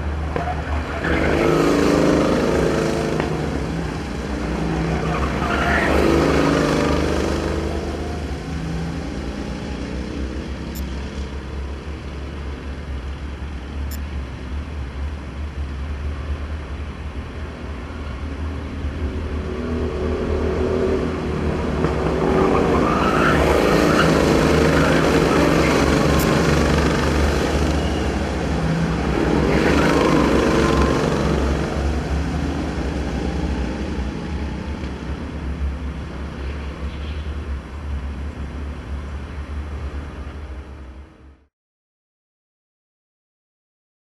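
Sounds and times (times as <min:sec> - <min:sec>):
go-kart engines passing: 0:00.0 - 0:12.6, 0:19.4 - 0:36.4.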